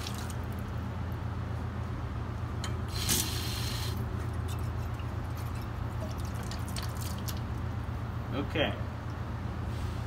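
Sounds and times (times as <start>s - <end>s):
low machine hum: 0.0s - 10.0s
water spraying from hose: 2.9s - 4.0s.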